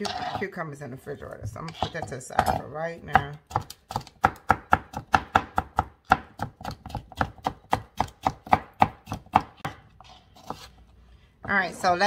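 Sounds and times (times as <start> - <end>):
knife chopping on cutting board: 1.8 - 9.8.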